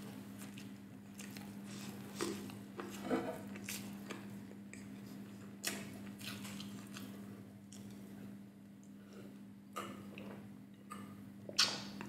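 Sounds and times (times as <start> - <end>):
close chewing with mouth smacks: 0.0 - 8.1
steady low hum: 0.0 - 12.0
sharp mouth clicks: 10.9 - 12.0.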